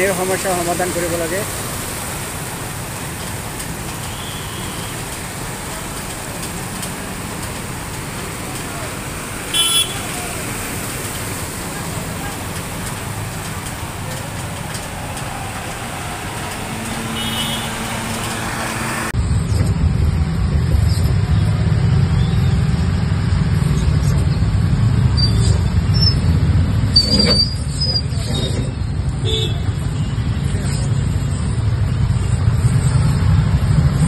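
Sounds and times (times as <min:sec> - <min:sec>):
rickshaw rumble in traffic: 0:00.0 - 0:34.0
vehicles splashing through water: 0:00.0 - 0:34.0
horn toot: 0:09.5 - 0:10.5, 0:15.5 - 0:19.1.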